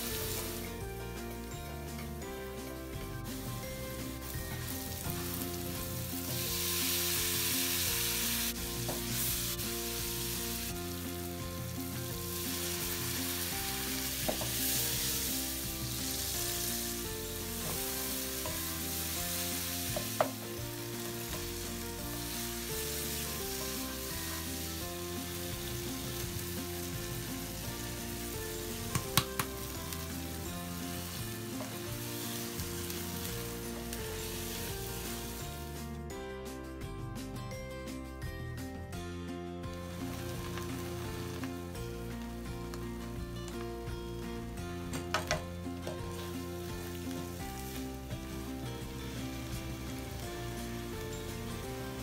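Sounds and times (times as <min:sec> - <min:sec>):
food sizzling in oil: 0:00.0 - 0:36.0, 0:39.8 - 0:43.2, 0:44.4 - 0:52.0.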